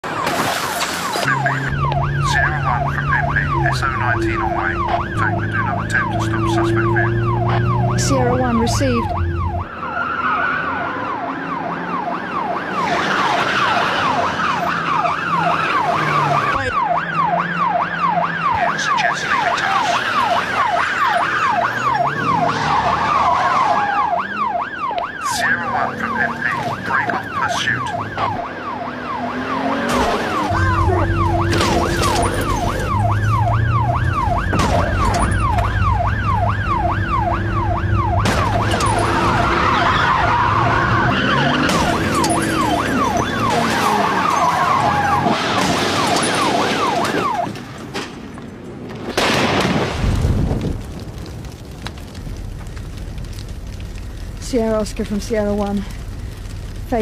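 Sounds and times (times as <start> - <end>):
police siren yelping: 0.0 - 47.9
cars driving at speed: 0.0 - 49.2.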